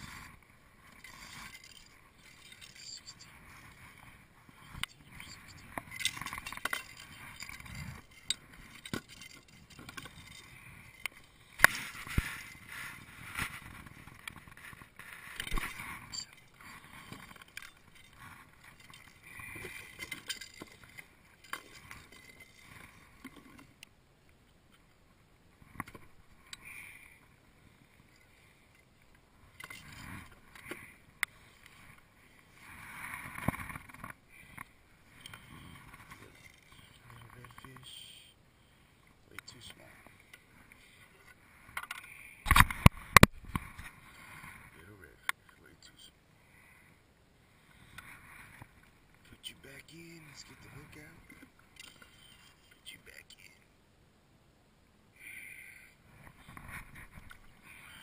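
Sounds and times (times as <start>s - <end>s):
rustling and bumps on kayak: 11.6s - 23.8s
knocks and clicks of kayak gear: 41.7s - 43.9s.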